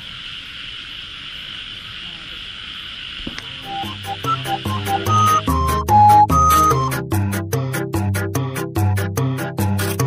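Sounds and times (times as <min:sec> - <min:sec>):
music with quick beat and bass: 0:03.6 - 0:10.0.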